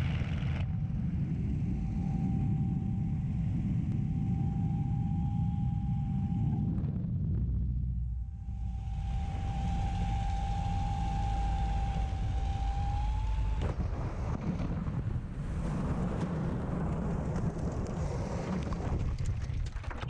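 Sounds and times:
airframe rumbling over ground: 0:00.0 - 0:20.0.

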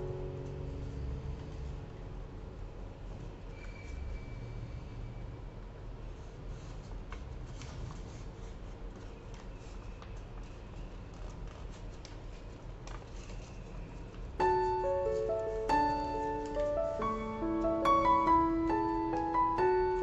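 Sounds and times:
piano music: 0:00.0 - 0:03.4, 0:14.4 - 0:20.0
paper rustling and crackling: 0:06.1 - 0:20.0.

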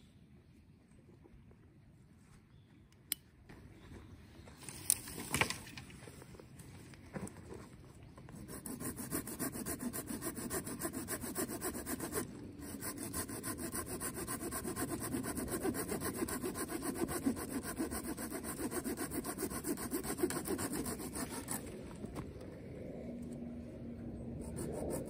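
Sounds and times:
hand saw cutting wood: 0:08.6 - 0:21.8.

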